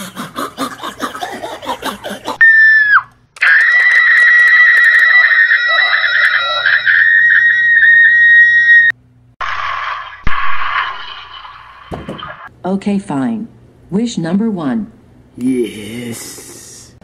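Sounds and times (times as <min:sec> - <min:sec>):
shrill scream: 0:02.4 - 0:08.9.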